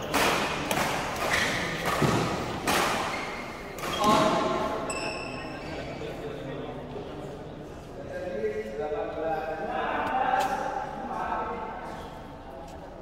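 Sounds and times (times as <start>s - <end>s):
racket striking shuttlecock: 0.0s - 3.2s.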